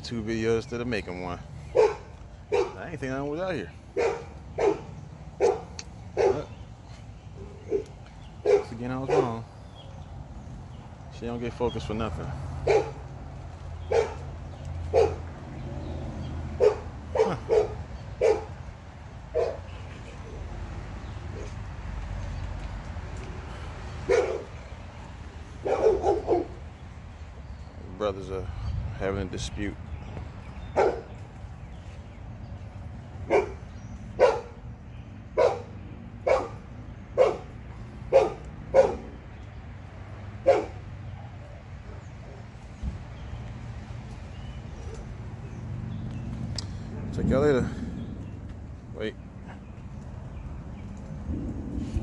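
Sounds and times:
dog barking: 1.7 - 2.8, 4.0 - 6.5, 7.6 - 9.4, 12.6 - 13.0, 13.9 - 14.3, 14.9 - 15.3, 16.6 - 18.6, 19.3 - 19.7, 24.1 - 24.6, 25.6 - 26.6, 30.7 - 31.1, 33.3 - 34.6, 35.4 - 36.6, 37.2 - 39.2, 40.4 - 40.8.

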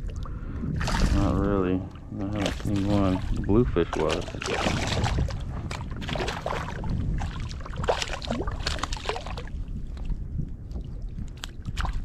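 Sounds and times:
fish splashing in water: 2.4 - 9.6.

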